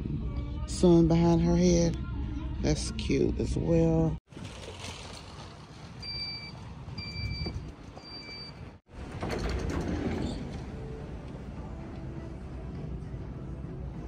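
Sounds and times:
reversing alarm beeping: 0:06.0 - 0:08.7.

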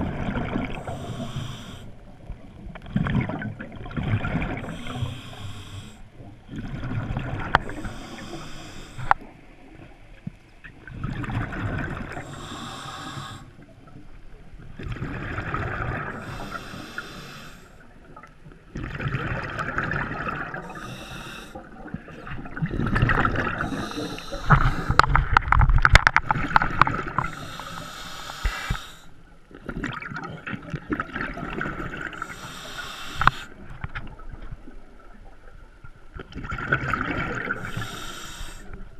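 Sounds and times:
exhaled bubbles gushing: 0:00.0 - 0:01.4, 0:02.8 - 0:05.3, 0:06.5 - 0:07.9, 0:10.8 - 0:12.5, 0:14.7 - 0:16.5, 0:18.0 - 0:27.5, 0:29.6 - 0:32.4, 0:36.2 - 0:38.0
regulator inhale hiss: 0:00.8 - 0:02.0, 0:04.6 - 0:06.1, 0:07.6 - 0:09.3, 0:12.2 - 0:13.6, 0:16.2 - 0:17.9, 0:20.6 - 0:21.6, 0:23.6 - 0:25.2, 0:27.2 - 0:29.2, 0:32.1 - 0:33.6, 0:37.5 - 0:38.8.

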